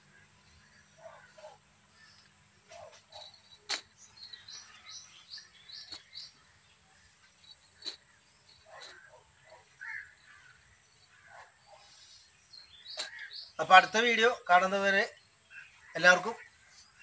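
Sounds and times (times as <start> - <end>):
faint bird calls: 7.8 - 13.6.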